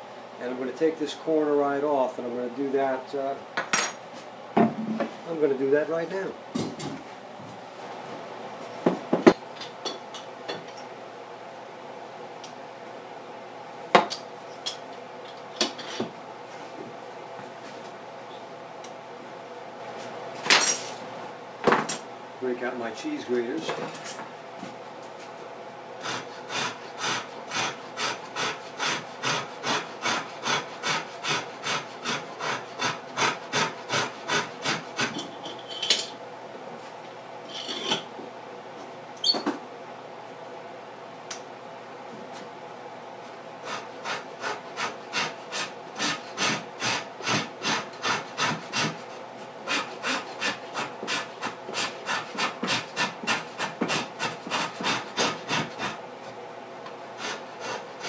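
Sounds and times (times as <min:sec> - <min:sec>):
hand rasp filing wood: 0:26.0 - 0:35.2, 0:43.6 - 0:56.0, 0:57.2 - 0:58.0.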